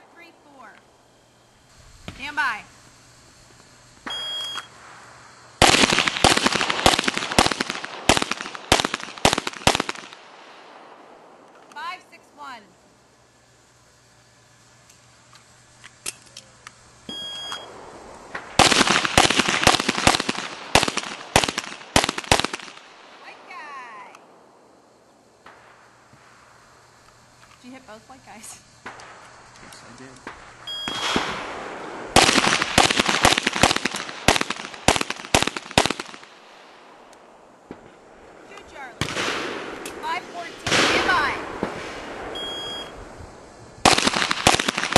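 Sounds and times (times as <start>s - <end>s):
shot timer beep: 4.1s - 4.7s, 17.1s - 17.7s, 30.7s - 31.2s, 42.4s - 43.0s
pistol shots: 5.6s - 10.4s, 17.1s - 22.9s, 30.2s - 36.4s, 39.0s - 42.4s, 43.8s - 44.9s.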